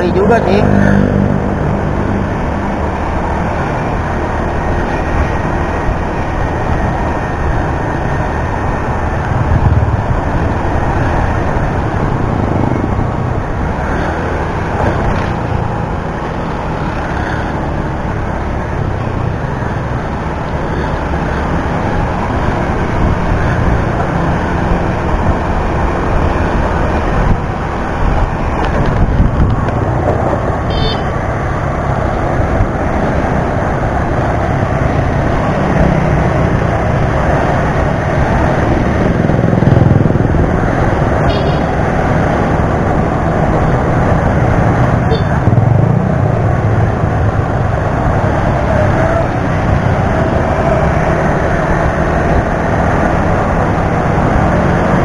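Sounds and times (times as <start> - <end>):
wind on microphone: 0.8 - 17.2, 18.7 - 31.2.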